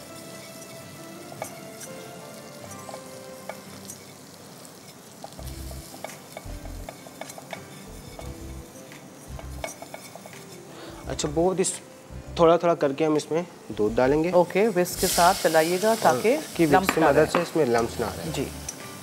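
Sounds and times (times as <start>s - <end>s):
butter and flour sizzling: 0.0s - 19.0s
whisk clicking against pan: 8.9s - 10.6s.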